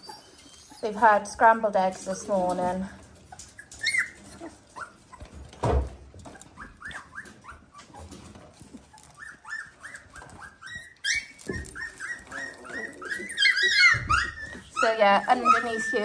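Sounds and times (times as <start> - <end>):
puppies whimpering and squeaking: 0.0 - 16.0
thump: 5.5 - 6.0.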